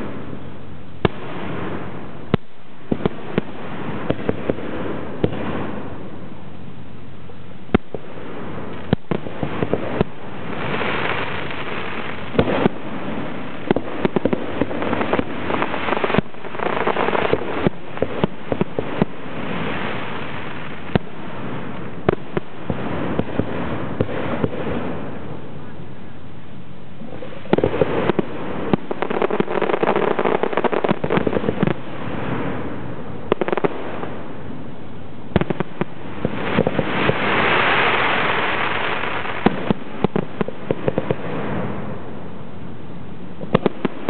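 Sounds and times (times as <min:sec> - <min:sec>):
crackling hiss of crackle shells: 0:27.0 - 0:34.4, 0:35.4 - 0:42.1.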